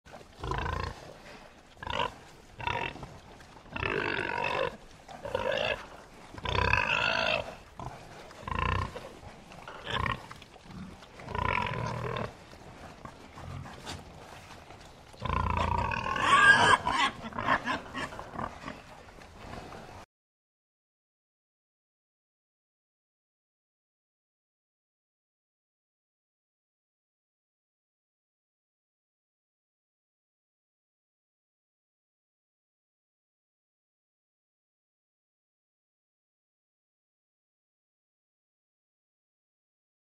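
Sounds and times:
pigs grunting: 0:00.1 - 0:20.0.

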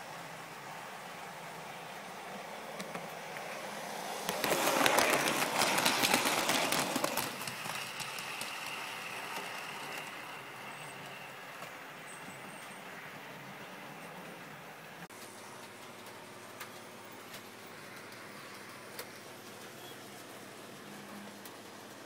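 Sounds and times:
model train clattering on track: 0:04.2 - 0:11.8.

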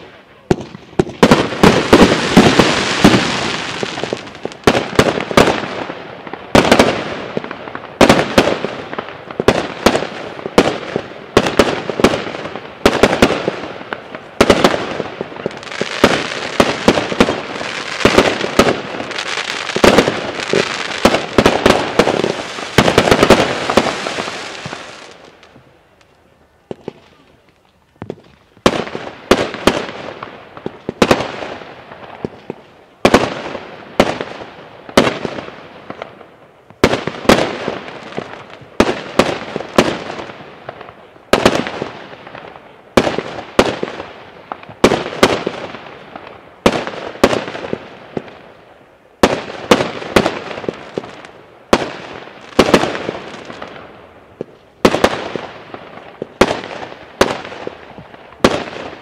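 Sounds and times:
fireworks bangs echoing: 0:00.0 - 0:25.7, 0:26.6 - 0:59.0.

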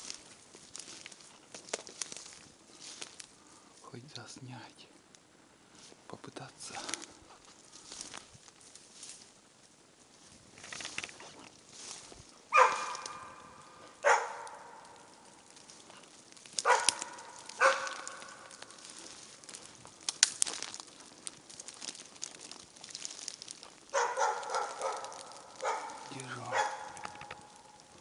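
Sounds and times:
dog barking: 0:12.5 - 0:15.2, 0:16.6 - 0:18.7, 0:23.9 - 0:27.8.

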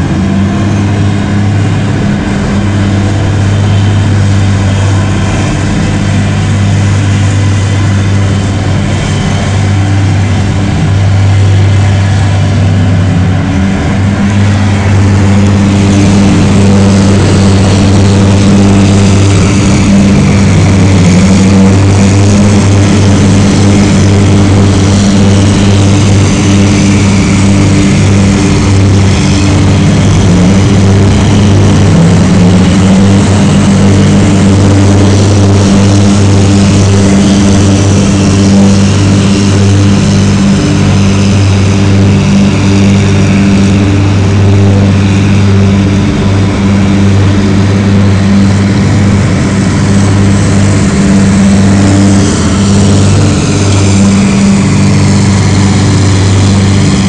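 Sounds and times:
snow-clearing trucks droning: 0:00.0 - 0:57.0.

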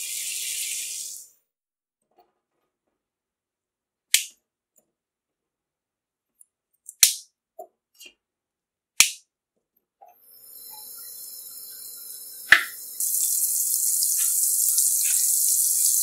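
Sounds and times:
steady hiss: 0:10.5 - 0:16.0.

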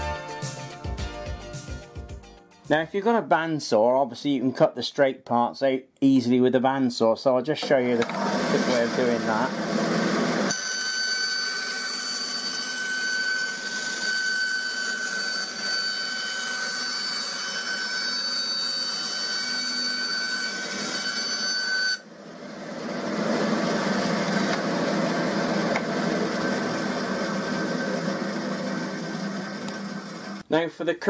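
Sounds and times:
bandsaw running: 0:07.7 - 0:30.4
high whine of saw cutting wood: 0:07.7 - 0:30.4.

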